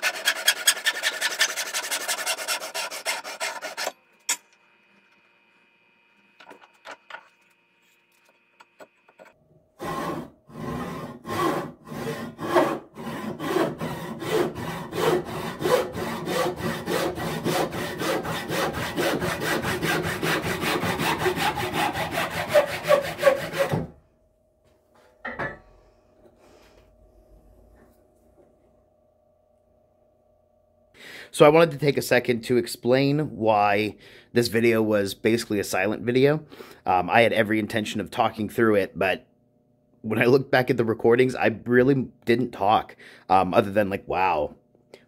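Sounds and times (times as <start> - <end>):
handsaw cutting wood: 0.0 - 4.0, 9.8 - 23.9.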